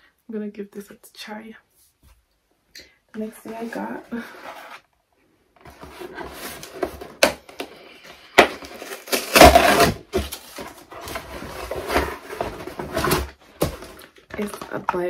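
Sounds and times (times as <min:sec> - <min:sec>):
cardboard package crackling and rustling: 0:05.6 - 0:15.0
package ripping: 0:08.4 - 0:10.6.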